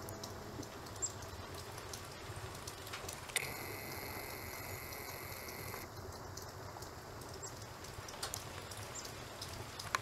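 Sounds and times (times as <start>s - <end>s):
faint rain patter: 0.0s - 10.0s
camera zoom motor whine: 3.4s - 5.9s.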